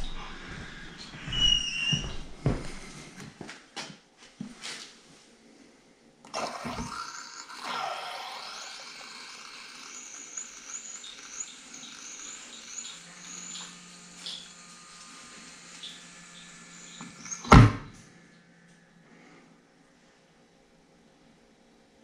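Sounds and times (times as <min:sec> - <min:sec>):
high squeaky chirps: 0:01.1 - 0:02.2, 0:07.8 - 0:14.6, 0:15.3 - 0:17.6
beer pouring into a glass: 0:06.3 - 0:08.8.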